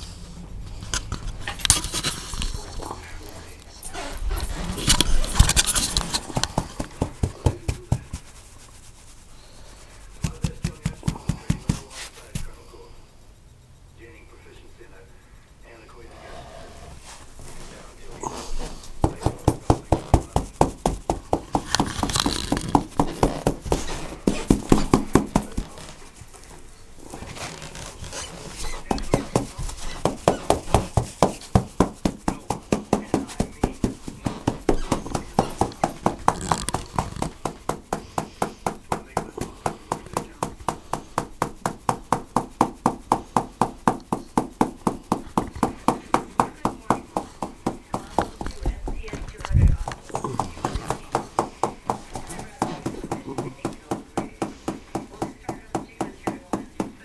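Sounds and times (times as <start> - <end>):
hand patting a cat: 5.0 - 8.4, 10.2 - 12.5, 19.0 - 26.0.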